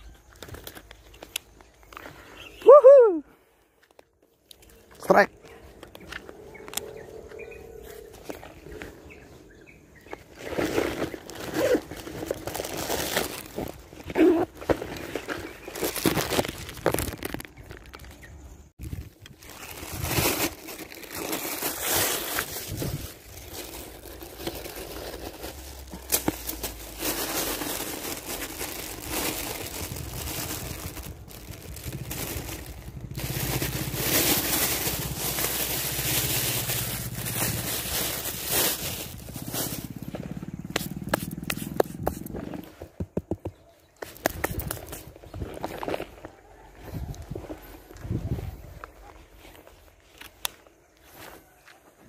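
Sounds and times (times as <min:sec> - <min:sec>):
plastic bag rustling: 0:10.3 - 0:18.2, 0:18.8 - 0:40.2.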